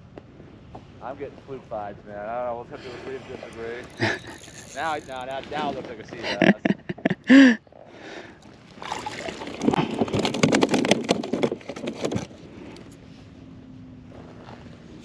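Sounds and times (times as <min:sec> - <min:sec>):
water splashing: 0:08.7 - 0:09.8.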